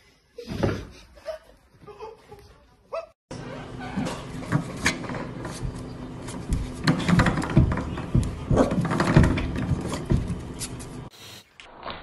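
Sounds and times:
spring doorstop twanging: 0:06.4 - 0:10.6.

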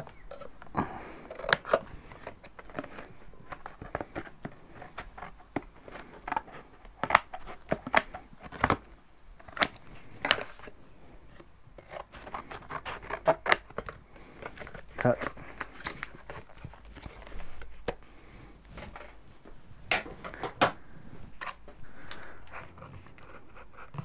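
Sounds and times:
scissors cutting cardboard: 0:11.8 - 0:17.3.

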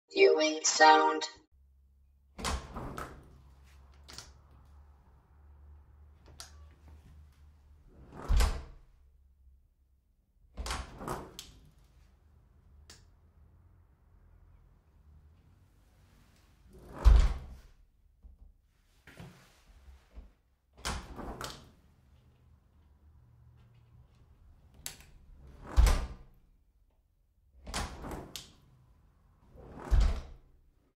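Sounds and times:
door shutting with a thud: 0:29.8 - 0:30.4.

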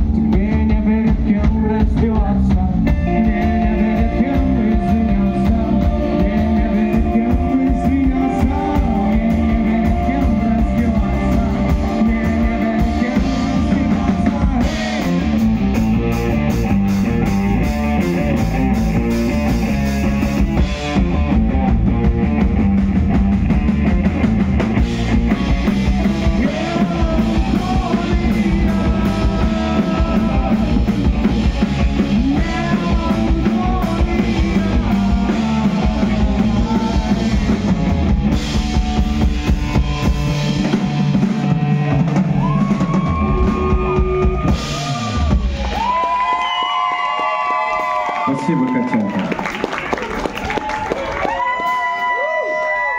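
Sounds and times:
drum kit with busy cymbals: 0:00.0 - 0:46.0
electric bass: 0:00.0 - 0:48.3
electric guitar: 0:00.0 - 0:52.9.

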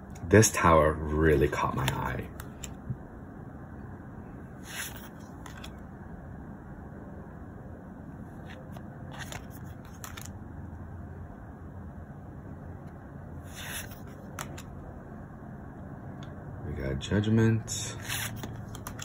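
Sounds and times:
low background hum: 0:00.0 - 0:19.0
cards scraping and flicking: 0:04.6 - 0:05.8, 0:08.4 - 0:10.4, 0:13.5 - 0:14.7, 0:18.0 - 0:19.0.

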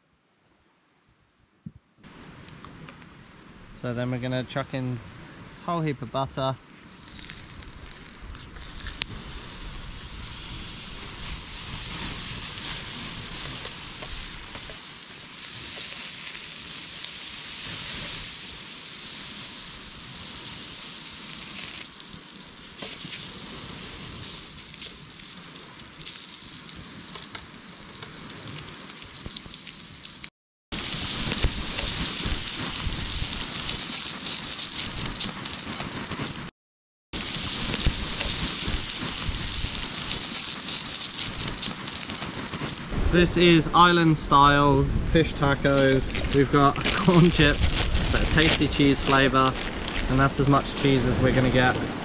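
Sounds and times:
fish frying: 0:06.8 - 0:36.5, 0:37.2 - 0:42.9, 0:45.8 - 0:51.2
butter sizzling in pan: 0:06.9 - 0:36.5, 0:37.2 - 0:42.9.

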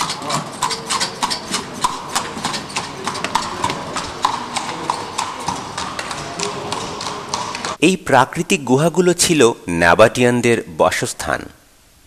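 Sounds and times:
horse hooves clip-clopping: 0:00.0 - 0:07.8.

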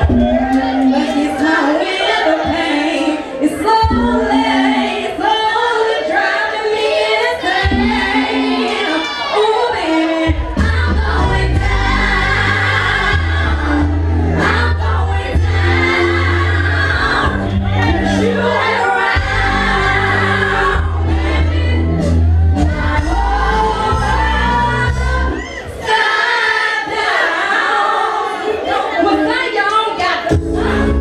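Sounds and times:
woman singing into a microphone: 0:00.0 - 0:13.5
amplified soul music: 0:00.0 - 0:31.0.

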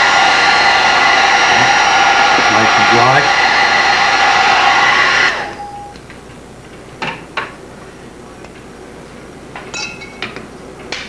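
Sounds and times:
hair dryer blowing: 0:00.0 - 0:05.8.

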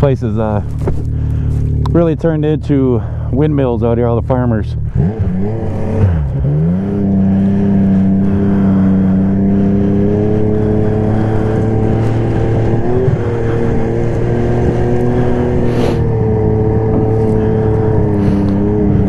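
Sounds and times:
snowmobile engine running: 0:00.0 - 0:19.0.

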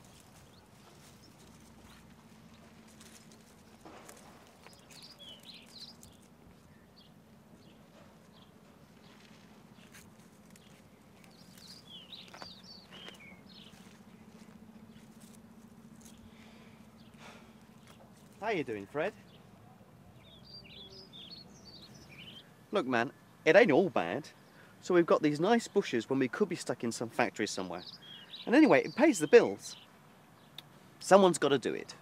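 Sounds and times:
low steady hum: 0:00.0 - 0:28.9
high bird chirps: 0:04.6 - 0:09.2, 0:10.6 - 0:14.3, 0:20.2 - 0:22.6.

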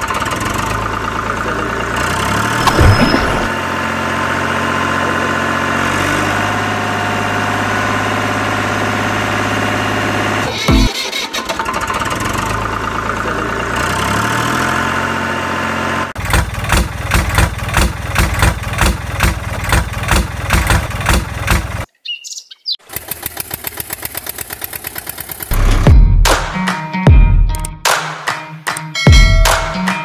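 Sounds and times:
tractor engine chugging: 0:00.0 - 0:05.1, 0:08.2 - 0:14.2, 0:15.6 - 0:21.9, 0:22.8 - 0:25.6
short bird chirp: 0:22.0 - 0:22.8.

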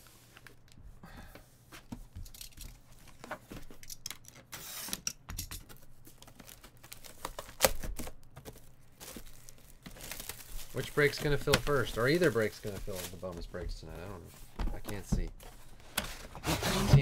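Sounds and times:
plastic wrap crinkling: 0:06.0 - 0:14.3.

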